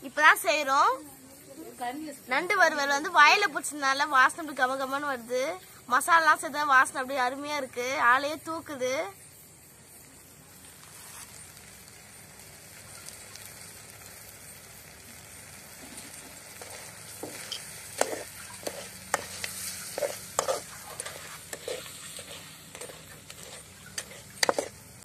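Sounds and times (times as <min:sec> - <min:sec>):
food sizzling in a pan: 0:00.0 - 0:25.0
metal ladle clinking and scraping: 0:16.6 - 0:24.9.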